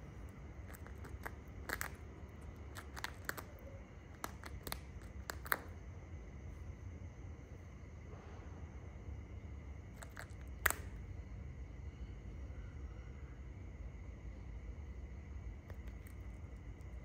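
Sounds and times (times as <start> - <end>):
steady low hum: 0.0 - 17.0
bird tearing at carcass: 2.6 - 3.5.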